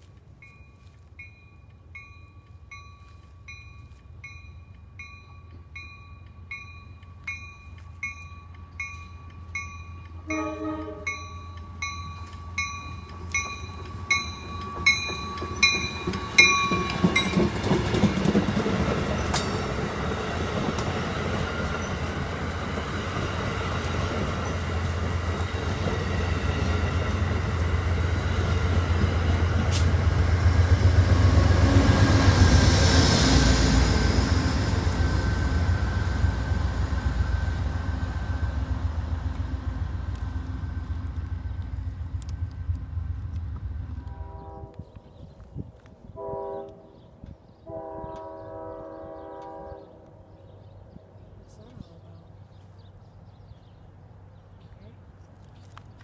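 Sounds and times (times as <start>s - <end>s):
diesel locomotive engine: 0.0s - 56.0s
wheels rumbling on rails: 0.0s - 56.0s
train bell ringing: 0.3s - 20.0s
train horn blast: 10.2s - 11.4s, 44.0s - 45.0s, 46.1s - 50.1s.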